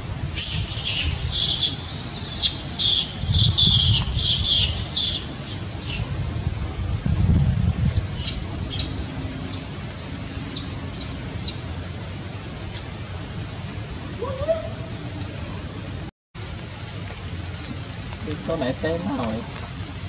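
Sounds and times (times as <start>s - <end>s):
monkey screaming: 0.3s - 6.0s, 14.2s - 15.0s.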